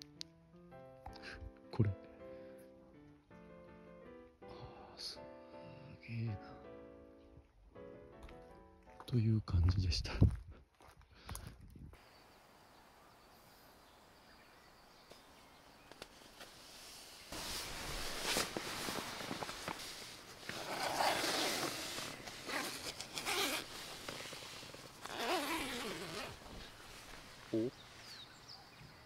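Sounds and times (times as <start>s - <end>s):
nylon fabric rustling: 16.1s - 28.2s
tent zipper pulled open: 16.7s - 27.4s.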